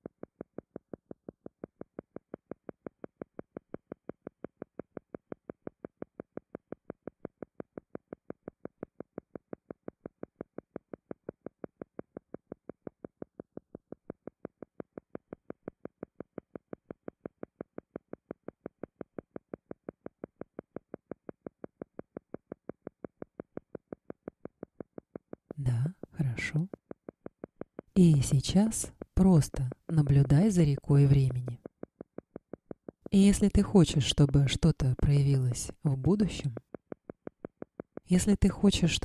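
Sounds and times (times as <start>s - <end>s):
soft pulsing tone: 28.0s - 31.7s.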